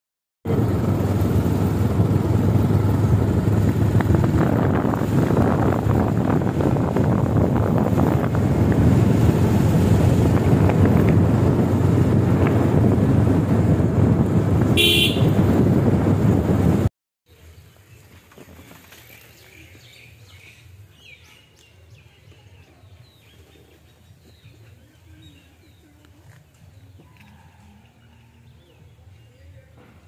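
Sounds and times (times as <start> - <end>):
vehicle engine rumble: 0.4 - 21.0
wind noise: 0.5 - 16.9
horn toot: 14.7 - 15.6.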